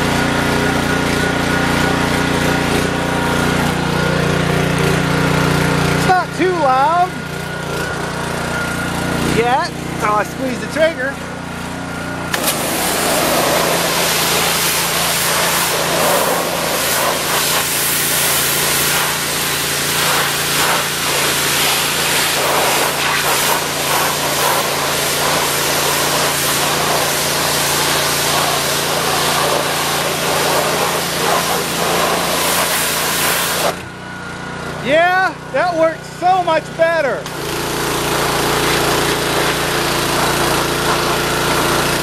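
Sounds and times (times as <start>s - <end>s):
small gasoline engine running: 0.0s - 42.0s
pressure washer spray hissing: 12.3s - 33.8s, 35.5s - 42.0s.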